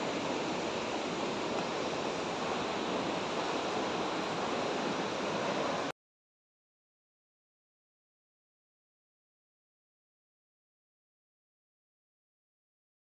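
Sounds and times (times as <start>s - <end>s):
waterfall rushing: 0.0s - 5.9s.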